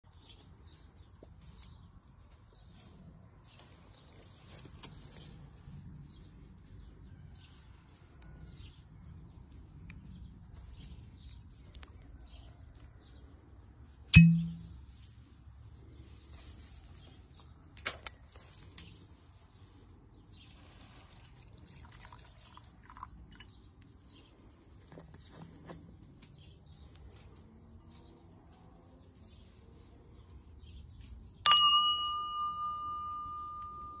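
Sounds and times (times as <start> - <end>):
light glass clinks: 14.1 - 14.9, 24.9 - 26.1, 31.4 - 34.0
crystal glass ringing tone: 14.2 - 14.8, 31.4 - 34.0.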